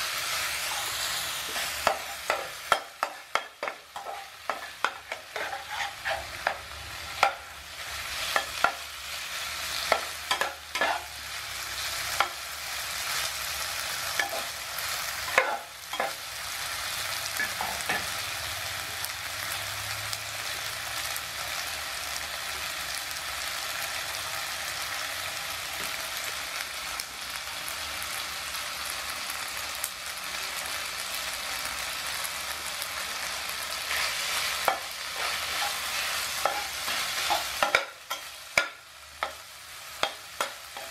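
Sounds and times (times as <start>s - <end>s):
food sizzling in frying pan: 0.0s - 40.9s
metal spatula scraping pan: 0.5s - 8.8s, 9.7s - 11.1s, 33.9s - 38.4s.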